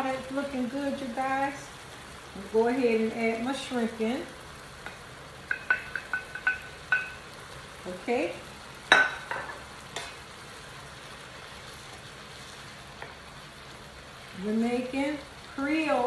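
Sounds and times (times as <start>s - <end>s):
food sizzling in skillet: 0.0s - 16.0s
wooden spoon clinking glass bowl: 5.5s - 7.2s.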